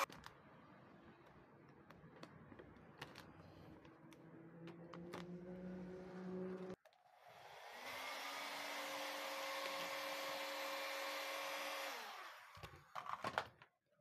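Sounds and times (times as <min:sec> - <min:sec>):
heat gun fan whine: 0:07.1 - 0:12.9.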